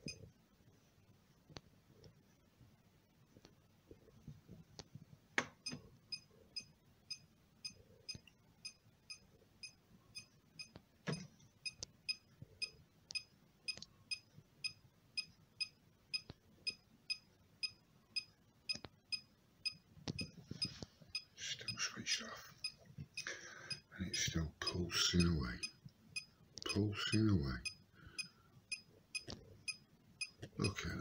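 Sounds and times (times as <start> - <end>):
meter beeping: 22.6 - 30.8.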